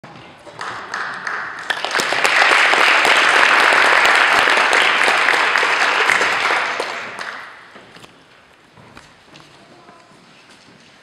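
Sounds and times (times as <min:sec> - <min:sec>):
audience applause: 0:00.4 - 0:07.7.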